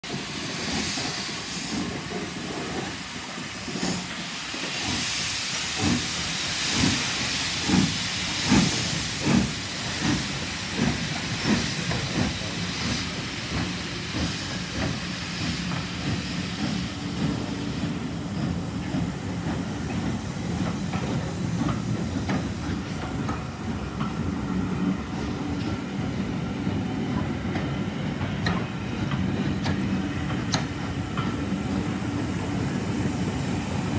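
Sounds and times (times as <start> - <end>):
train coaches rumbling: 0.0 - 33.9
steam hissing: 0.1 - 33.9
steam locomotive exhaust chuffs: 0.1 - 33.9
train wheel clicks: 27.2 - 32.0.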